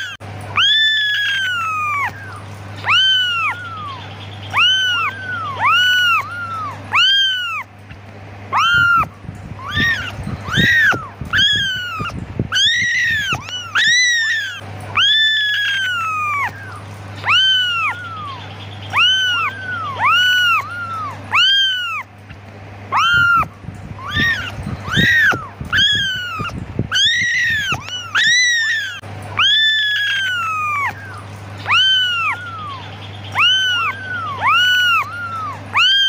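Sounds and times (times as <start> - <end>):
kittens meowing: 0.0 - 36.0
steady low hum: 0.0 - 36.0.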